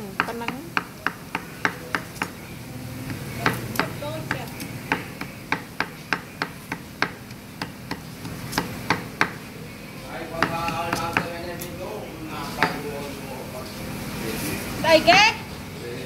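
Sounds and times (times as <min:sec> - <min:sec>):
cleaver chopping on wooden block: 0:00.2 - 0:02.4, 0:03.4 - 0:09.4, 0:10.4 - 0:11.4.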